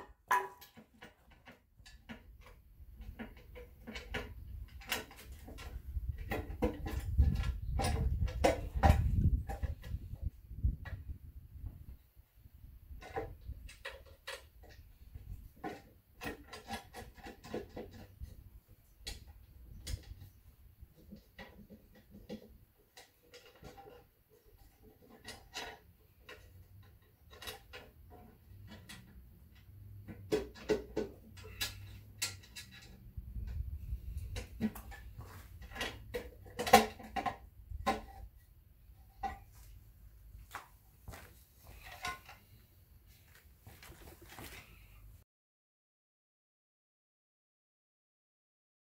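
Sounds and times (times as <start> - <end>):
hand tools clicking on metal: 21.0 - 38.1
metal clinks and knocks: 21.0 - 38.4, 40.5 - 42.6.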